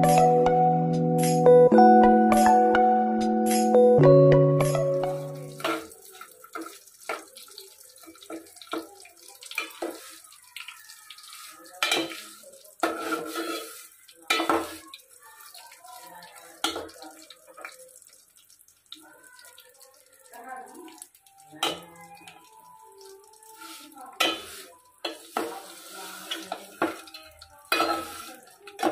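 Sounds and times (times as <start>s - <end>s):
ladle scraping metal pot: 11.3s - 14.8s, 24.2s - 28.9s.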